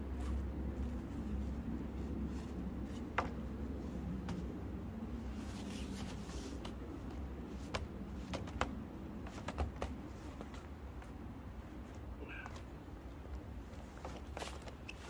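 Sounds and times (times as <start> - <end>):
tent fabric handled: 0.0 - 4.5
low steady rumble: 0.0 - 14.5.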